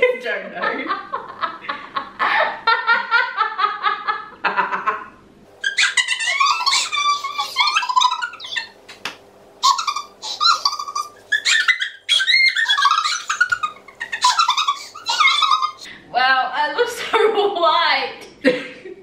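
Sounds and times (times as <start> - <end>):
women laughing: 0.5 - 8.8, 9.6 - 15.9, 18.4 - 19.0.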